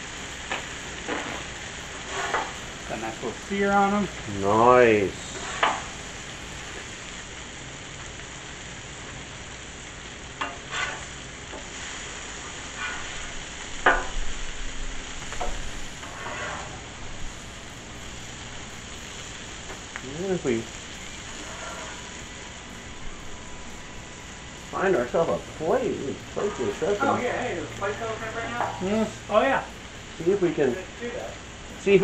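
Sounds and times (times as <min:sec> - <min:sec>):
shrimp sizzling on a griddle: 0:00.0 - 0:32.0
metal spatula scraping griddle: 0:00.5 - 0:02.7, 0:05.2 - 0:06.0, 0:10.4 - 0:12.0, 0:12.6 - 0:14.2, 0:15.4 - 0:17.0, 0:21.3 - 0:22.2, 0:25.2 - 0:27.2, 0:28.4 - 0:29.0.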